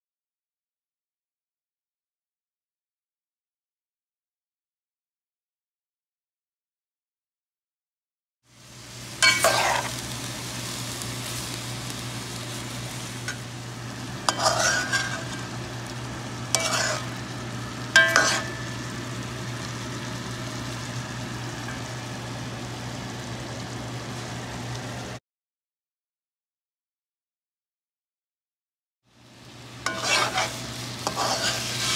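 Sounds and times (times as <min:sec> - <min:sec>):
chicken sizzling in oil: 0:08.4 - 0:25.2, 0:29.1 - 0:31.9
metal spoon scraping pot: 0:09.2 - 0:09.9, 0:14.3 - 0:15.4, 0:16.5 - 0:17.1, 0:18.0 - 0:18.5, 0:29.9 - 0:31.9.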